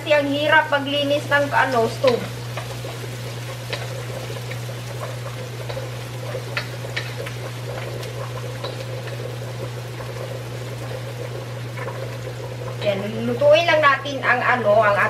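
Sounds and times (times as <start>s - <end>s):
garlic sizzling in hot oil: 0.0s - 15.0s
steady low hum: 0.0s - 15.0s
crackling pops: 1.6s - 12.9s.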